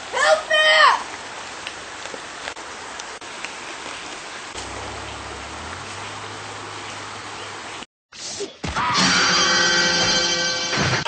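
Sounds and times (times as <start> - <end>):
low hum: 4.6 - 7.5.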